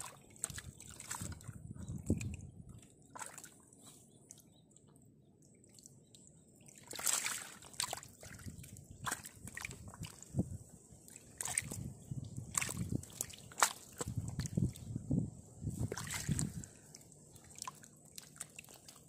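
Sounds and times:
fish splashing in water: 0:03.0 - 0:03.6, 0:06.6 - 0:10.3, 0:11.1 - 0:14.7, 0:15.8 - 0:19.0.

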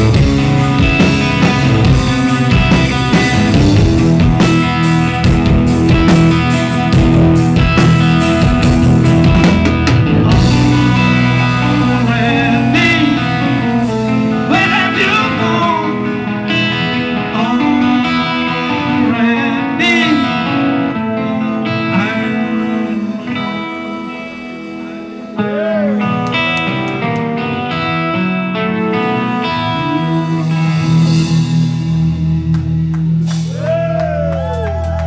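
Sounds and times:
heavy drumming: 0:00.0 - 0:16.0, 0:30.0 - 0:35.0
live rock band playing: 0:00.0 - 0:35.0
person singing: 0:10.4 - 0:23.7.

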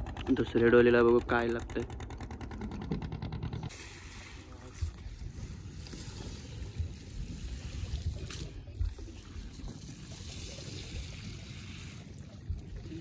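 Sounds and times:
water trickling and splashing: 0:03.7 - 0:13.0
wind rumble on microphone: 0:04.7 - 0:13.0.

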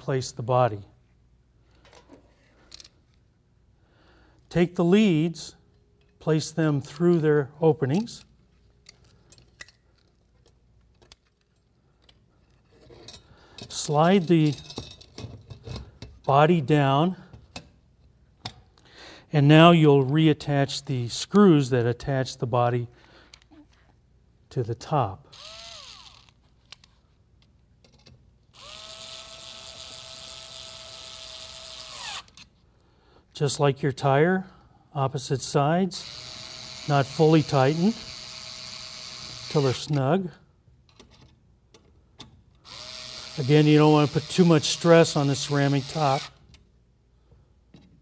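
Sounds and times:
clicks and clinks of handling metal: 0:08.8 - 0:16.1
electric screwdriver whirring: 0:25.4 - 0:26.4, 0:28.6 - 0:32.4, 0:42.7 - 0:46.4.

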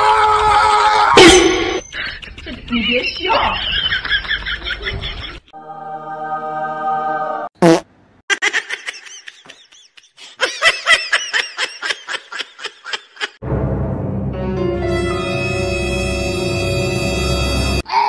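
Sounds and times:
high-pitched laughter: 0:08.3 - 0:13.4.

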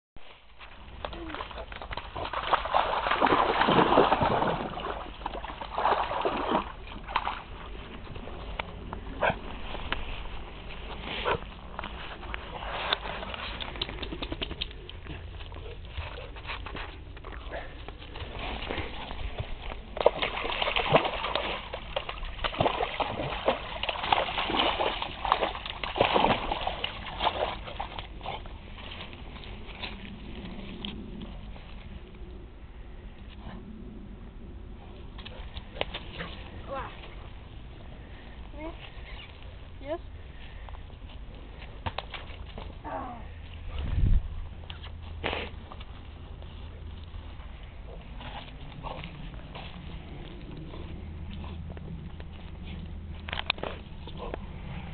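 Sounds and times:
dog splashing through water: 0:01.0 - 0:08.6, 0:17.5 - 0:30.8.

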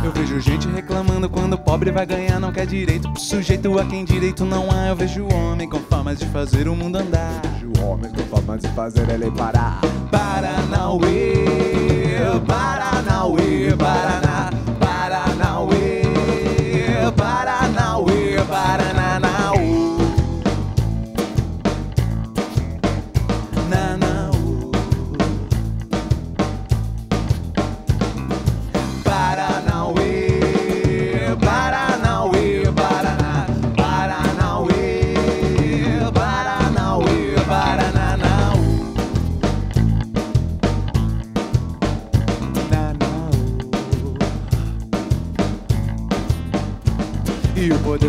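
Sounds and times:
bass guitar: 0:00.0 - 0:48.0
electric and acoustic guitars: 0:00.0 - 0:48.0
rock band playing live: 0:00.0 - 0:48.0
steady drum beat: 0:00.0 - 0:48.0
lead singer holding long notes: 0:10.0 - 0:20.6, 0:23.6 - 0:25.7, 0:29.0 - 0:39.2.

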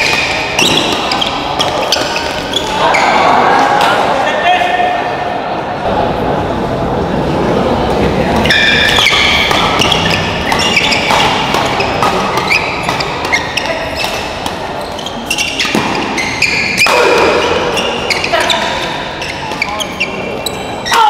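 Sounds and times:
rackets hitting shuttlecock: 0:00.0 - 0:02.8, 0:08.3 - 0:21.0
shoes squeaking on court floor: 0:00.0 - 0:03.2, 0:08.3 - 0:21.0
crowd noise: 0:00.0 - 0:21.0.

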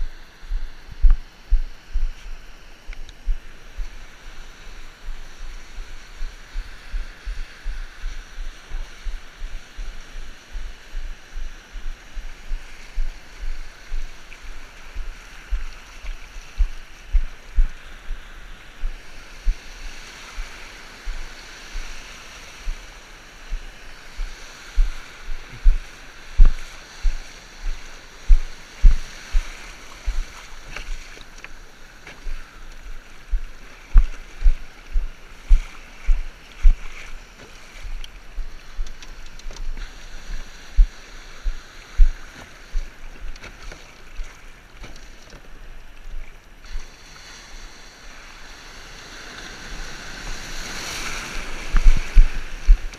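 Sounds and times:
surf washing in shallows: 0:00.0 - 0:52.9
low thumps: 0:16.5 - 0:17.8, 0:23.5 - 0:30.2.

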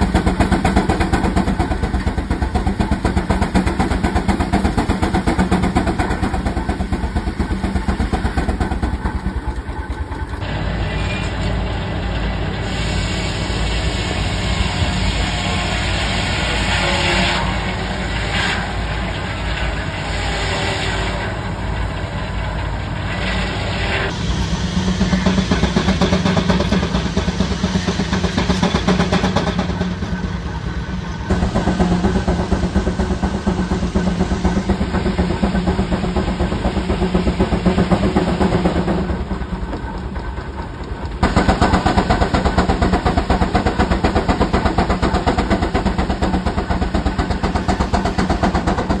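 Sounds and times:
steam engine exhaust chuffing: 0:00.0 - 0:49.0.

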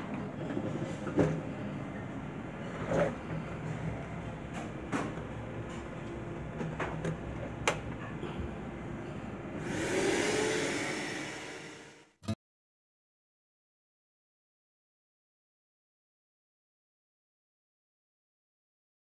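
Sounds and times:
vacuum cleaner low hum: 0:08.2 - 0:12.1
hiss with rising whine: 0:09.6 - 0:12.1.

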